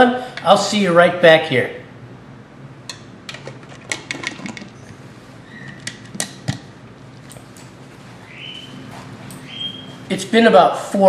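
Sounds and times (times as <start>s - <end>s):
kitchen items clicking and clinking: 3.3s - 4.8s.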